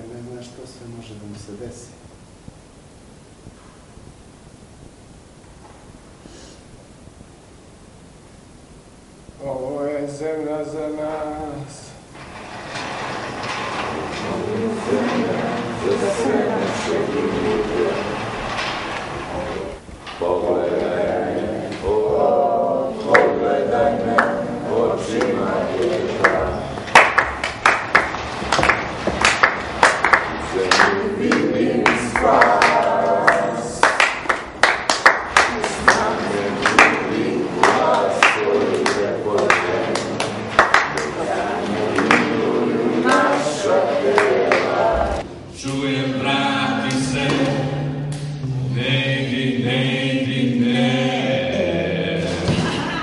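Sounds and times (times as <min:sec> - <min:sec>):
people clapping: 0:13.4 - 0:19.6, 0:20.6 - 0:45.8
voices singing chant-like notes: 0:13.7 - 0:18.7, 0:19.3 - 0:27.9, 0:28.6 - 0:52.9.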